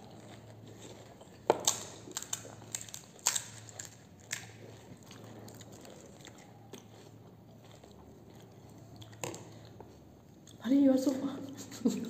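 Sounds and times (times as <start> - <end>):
crunching while eating: 0.0 - 11.2
crisp shells cracking: 1.3 - 6.9.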